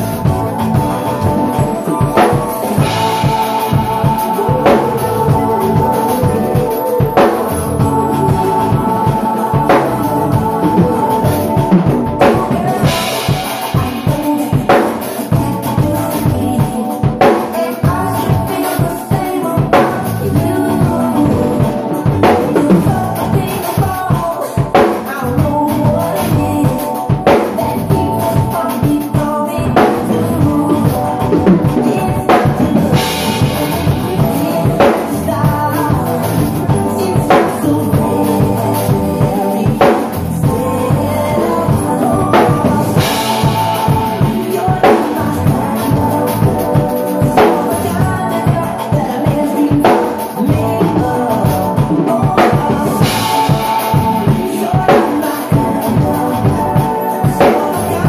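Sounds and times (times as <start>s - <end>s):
drum kit groove: 0.0s - 58.0s
recorded song: 0.0s - 58.0s.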